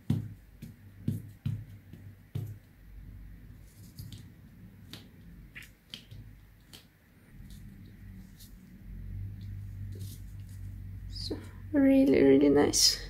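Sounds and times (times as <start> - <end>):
paper rustling: 3.6 - 4.3, 9.4 - 10.8.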